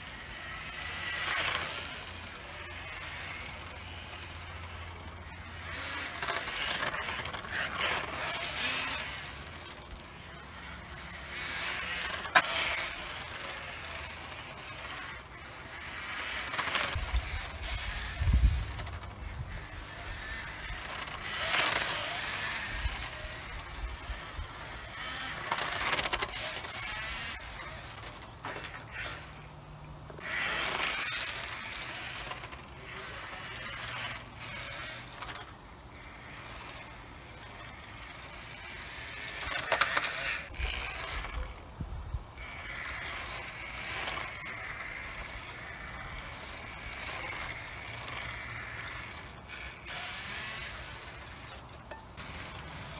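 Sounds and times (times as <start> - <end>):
tyres squealing on asphalt: 0.0 - 41.7
rc car motor whining: 0.0 - 52.9.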